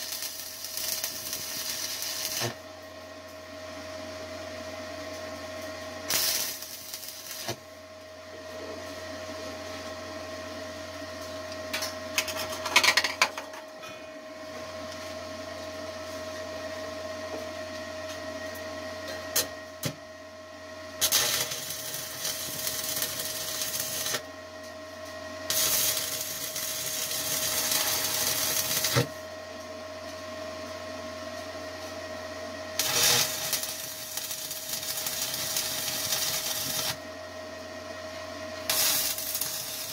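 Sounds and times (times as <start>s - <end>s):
welding arc crackling: 0.0s - 2.6s, 6.1s - 7.6s, 21.0s - 24.2s, 25.5s - 29.2s, 32.8s - 37.0s, 38.7s - 39.9s
steady hum: 0.0s - 12.8s, 13.4s - 39.9s.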